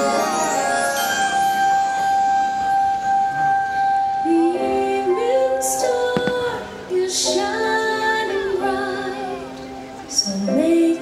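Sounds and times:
woman singing over music: 4.2s - 11.0s
firework bangs: 6.1s - 7.1s
firework crackling hisses: 6.1s - 7.6s.

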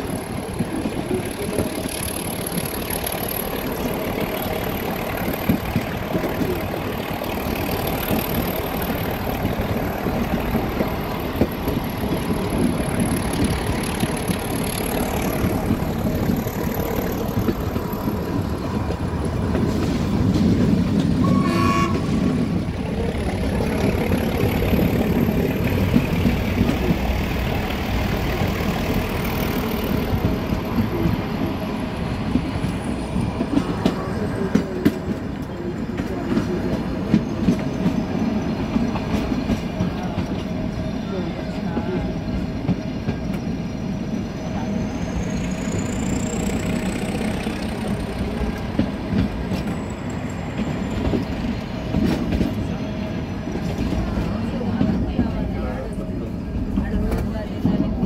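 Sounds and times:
wheels clicking over rail joints: 0.0s - 40.8s, 45.5s - 58.0s
train coaches rumbling and rattling: 0.0s - 58.0s
train horn: 21.2s - 22.4s.

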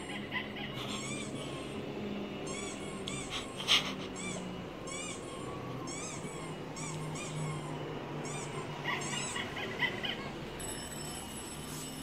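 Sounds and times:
dog toy squeaks: 2.4s - 10.8s.

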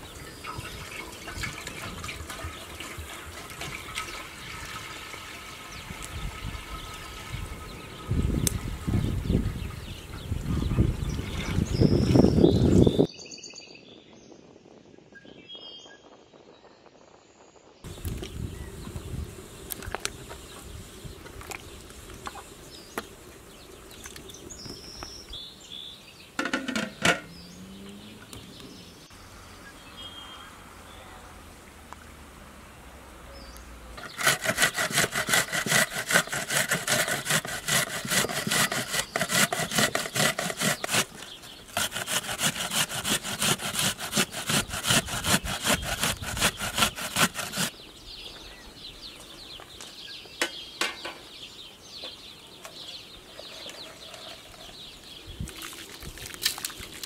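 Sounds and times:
vegetable grated on metal grater: 34.0s - 47.7s.

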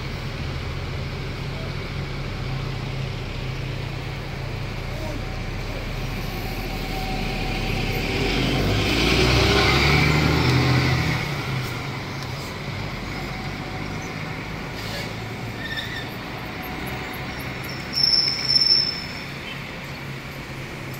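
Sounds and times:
coach diesel engine pulling away: 0.0s - 20.9s
traffic: 0.0s - 20.9s
brief shrill high tone: 17.9s - 19.4s.

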